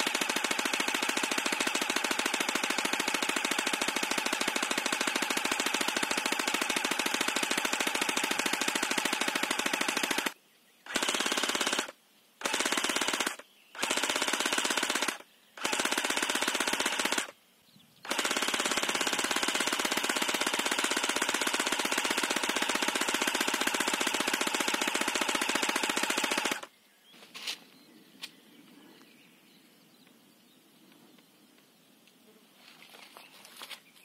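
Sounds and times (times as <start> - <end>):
airsoft gun firing full-auto: 0.0 - 17.4, 18.0 - 26.7.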